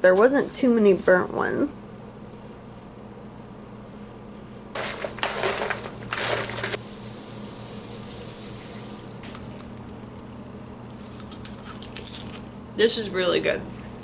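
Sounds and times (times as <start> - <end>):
low appliance hum: 0.0 - 14.0
seasoning shaken from container: 4.8 - 9.6.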